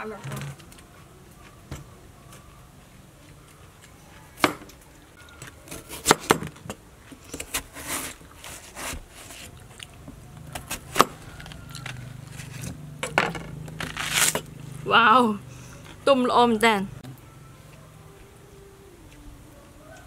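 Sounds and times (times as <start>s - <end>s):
knife cracking through rind: 13.7s - 14.5s
crunch of fruit flesh sliced: 13.8s - 14.5s.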